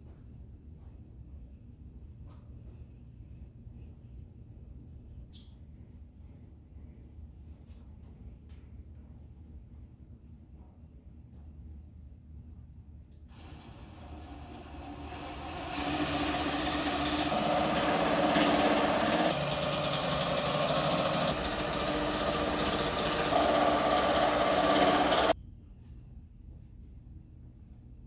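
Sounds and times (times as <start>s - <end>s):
machine drone with high whine: 13.3s - 25.4s.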